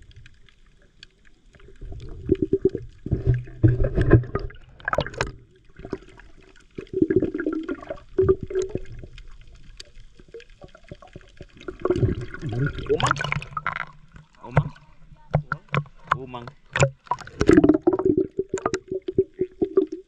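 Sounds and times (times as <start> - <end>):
water gurgling underwater: 0.0 - 20.0.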